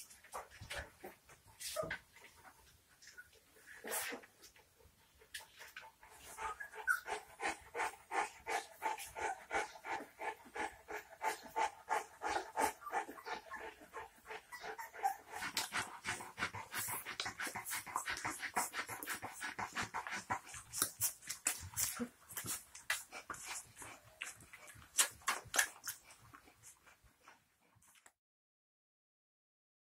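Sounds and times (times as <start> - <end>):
puppies whimpering and squeaking: 6.1 - 9.7, 12.2 - 15.8.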